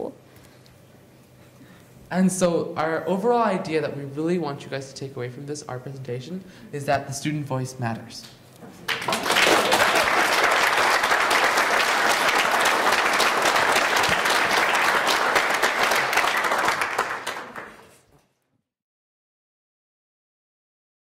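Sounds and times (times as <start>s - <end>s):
audience applauding: 8.8s - 18.0s.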